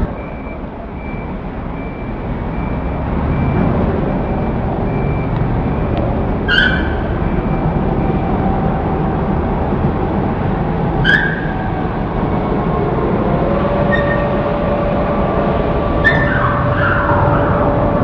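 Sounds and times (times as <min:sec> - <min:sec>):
crane machinery rumbling: 0:00.0 - 0:18.0
short high squeal: 0:06.5 - 0:07.2, 0:11.0 - 0:11.6, 0:13.9 - 0:14.4, 0:16.0 - 0:17.7.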